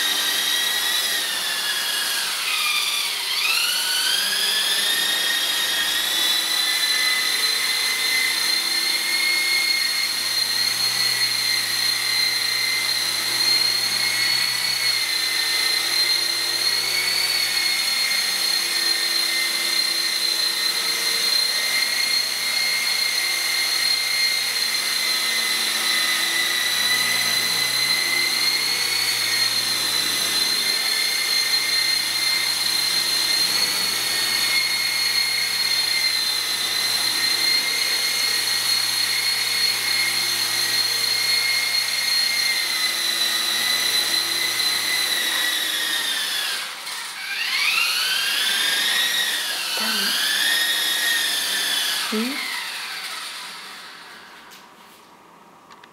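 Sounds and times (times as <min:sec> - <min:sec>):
rc helicopter motor whine: 0:00.0 - 0:54.7.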